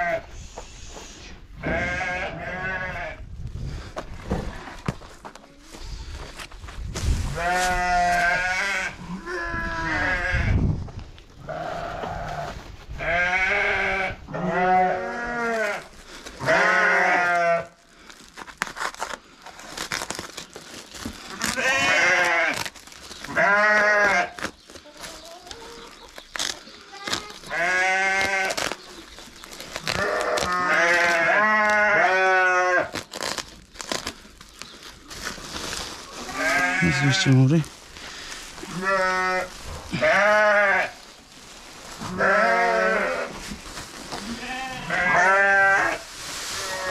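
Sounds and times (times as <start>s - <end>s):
sheep bleating: 1.6s - 3.2s, 7.4s - 10.6s, 11.4s - 15.8s, 16.4s - 17.7s, 21.4s - 22.6s, 23.3s - 24.3s, 27.5s - 28.6s, 30.0s - 32.9s, 36.3s - 37.4s, 38.7s - 41.0s, 42.0s - 43.3s, 44.2s - 46.0s.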